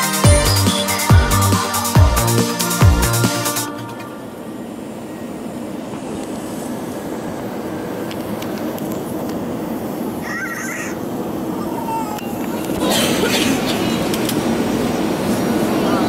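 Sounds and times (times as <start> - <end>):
background music: 0.0 - 4.4
aircraft cabin rumble: 4.0 - 16.0.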